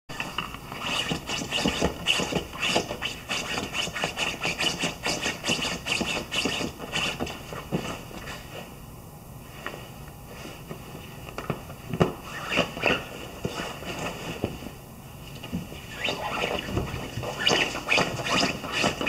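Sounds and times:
puppy scratching dog bed: 0:00.8 - 0:08.4, 0:16.0 - 0:19.0
fabric rustling: 0:09.4 - 0:19.0.

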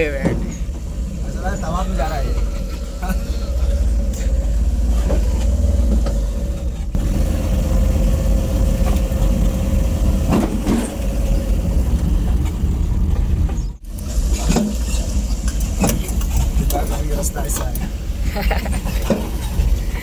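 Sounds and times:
road knocks: 0:00.0 - 0:01.3, 0:02.2 - 0:13.7
engine low rumble with whine: 0:00.0 - 0:20.0.

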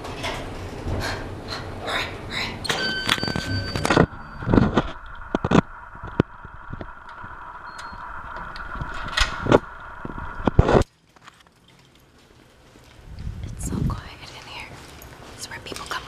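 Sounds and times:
steady high hum: 0:00.2 - 0:10.9
card reader beep: 0:02.7 - 0:04.7
footsteps: 0:03.1 - 0:16.0.

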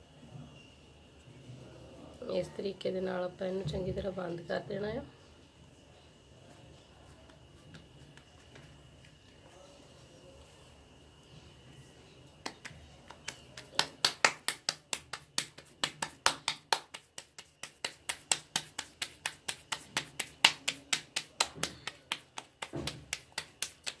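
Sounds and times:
dough slapped between palms: 0:12.4 - 0:24.0.

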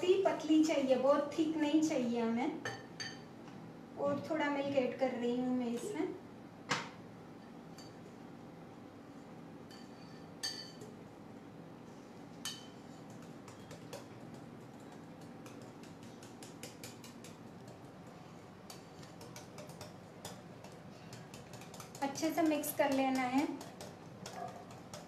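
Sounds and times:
ringing clinks of whisk on bowl: 0:09.7 - 0:10.8.

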